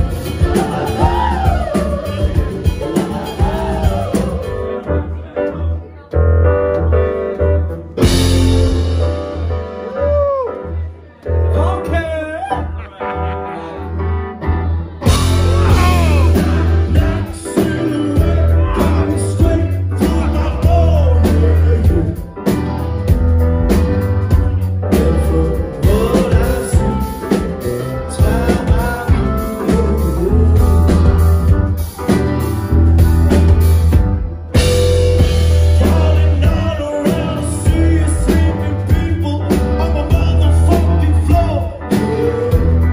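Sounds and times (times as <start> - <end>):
lead vocal singing: 0.0 - 5.2, 15.0 - 22.5, 24.8 - 31.6, 34.6 - 42.9
heavy bass line: 0.0 - 5.3, 6.2 - 12.0, 13.8 - 42.9
live rock band playing: 0.0 - 42.9.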